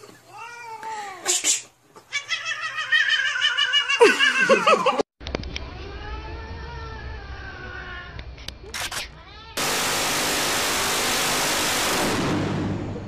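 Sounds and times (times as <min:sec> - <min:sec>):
cat meowing and yowling: 0:05.6 - 0:08.2
low hum: 0:09.6 - 0:13.0.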